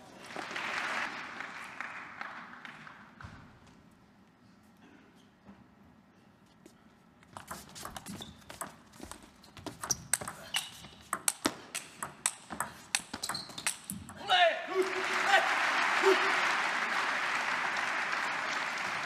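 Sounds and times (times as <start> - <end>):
shoes squeaking on floor: 7.3 - 12.0, 12.7 - 14.1
table tennis ball clicking: 9.8 - 14.2.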